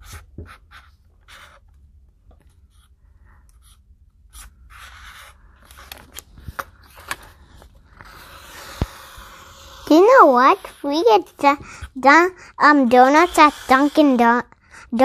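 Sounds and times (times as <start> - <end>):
marker scratching on paper: 0.0 - 1.6, 3.5 - 5.9, 7.9 - 12.0.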